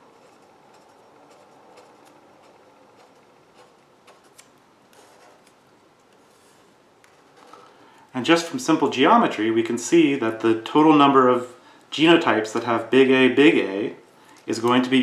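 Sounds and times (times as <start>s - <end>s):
felt-tip marker scratching: 0.2s - 5.5s.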